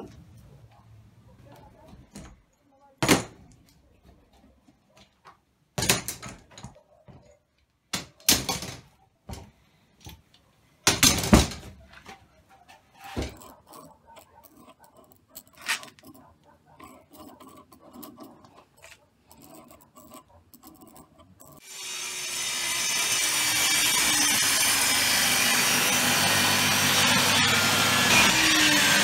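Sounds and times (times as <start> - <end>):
wood block taps and scratches: 11.8 - 21.6
table saw running: 21.6 - 29.0.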